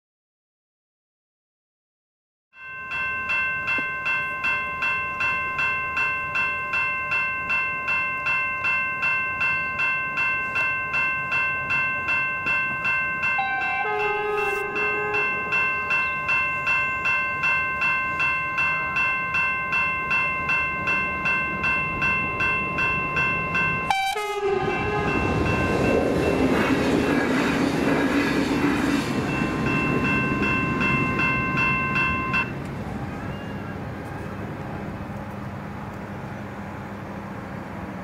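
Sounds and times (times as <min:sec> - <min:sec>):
level crossing bells ringing: 0:02.6 - 0:27.5, 0:28.7 - 0:33.8
train wheels rumbling on rails: 0:03.5 - 0:38.0
train horn blast: 0:13.4 - 0:15.6, 0:23.9 - 0:25.5.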